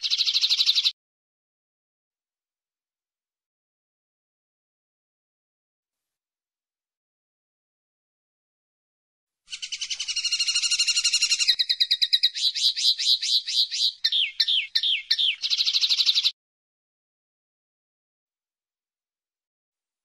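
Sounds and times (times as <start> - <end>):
linnet singing twittering trills: 0.0 - 0.9, 9.5 - 16.3.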